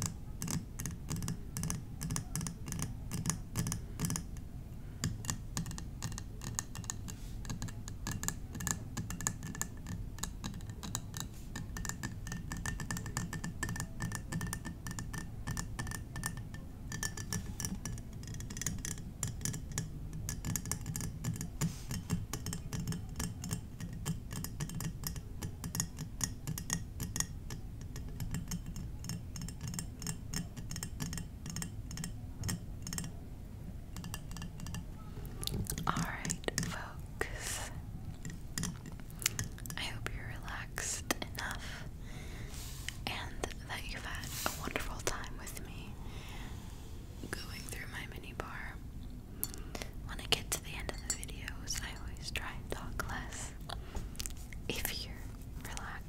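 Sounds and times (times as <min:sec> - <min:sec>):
tapping on glass bottles: 0:00.0 - 0:33.2, 0:35.4 - 0:39.9, 0:49.4 - 0:53.8.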